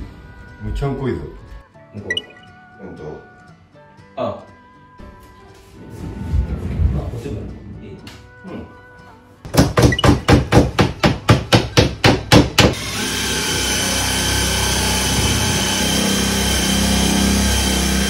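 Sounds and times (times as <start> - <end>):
hammer striking wooden frame: 9.5 - 12.8
power tool running: 12.8 - 18.0.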